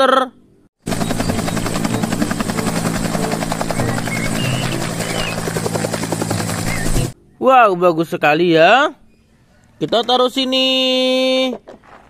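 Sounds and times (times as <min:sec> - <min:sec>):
helicopter rotor chopping: 0:00.8 - 0:07.2
turbine hum: 0:00.8 - 0:07.2.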